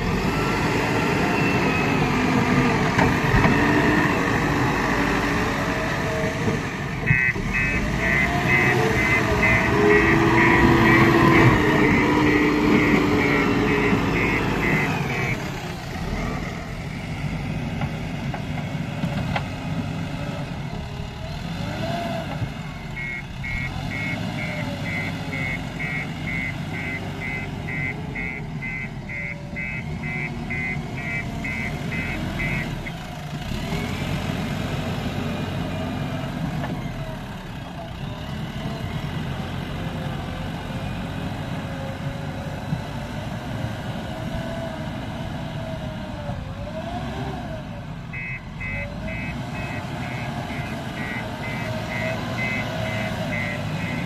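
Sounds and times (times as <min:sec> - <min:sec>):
diesel engine running: 0:00.0 - 0:54.0
reversing alarm beeping: 0:07.0 - 0:15.6, 0:22.9 - 0:33.0, 0:48.1 - 0:54.0.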